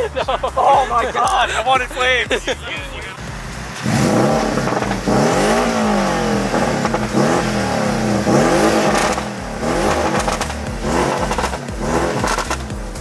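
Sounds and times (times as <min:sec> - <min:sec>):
exhaust pops: 0:01.2 - 0:13.0
sports car engine revving: 0:03.1 - 0:13.0.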